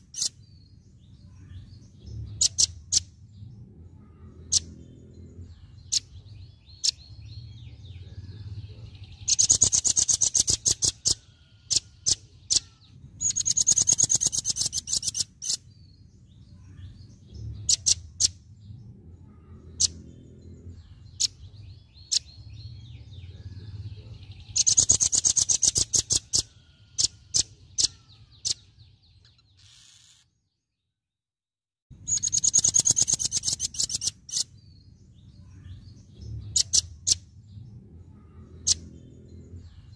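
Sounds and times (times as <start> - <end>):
low background rumble: 15.2 - 24.6
bird high trills: 24.5 - 30.2.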